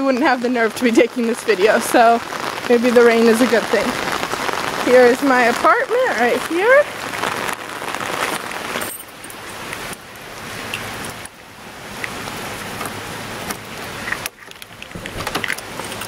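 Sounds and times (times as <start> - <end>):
rain on wet street: 0.0 - 16.0.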